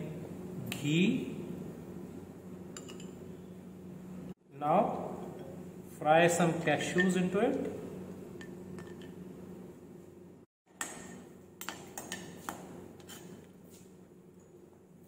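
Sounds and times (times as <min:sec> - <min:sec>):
low steady hum: 0:00.0 - 0:15.0.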